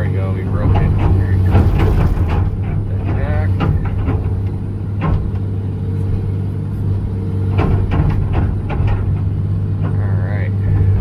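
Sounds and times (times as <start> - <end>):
excavator diesel engine running: 0.0 - 11.0
bucket knocking and scraping dirt: 0.1 - 5.6.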